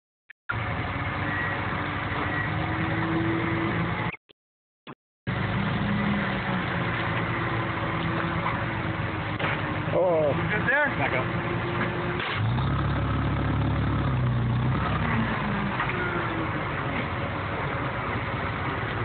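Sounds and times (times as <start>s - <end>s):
forklift engines idling: 5.3s - 19.0s.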